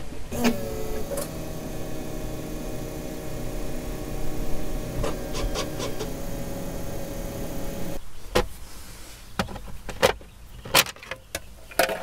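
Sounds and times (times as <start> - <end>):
steady electric hum: 0.0 - 8.0
quick clicks: 0.3 - 8.0.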